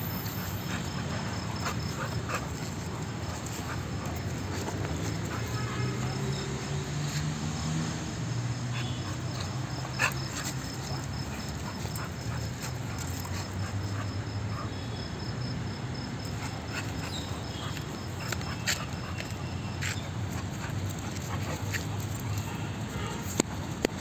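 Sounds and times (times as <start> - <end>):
dog play-growls: 0.6 - 6.4, 8.8 - 14.6.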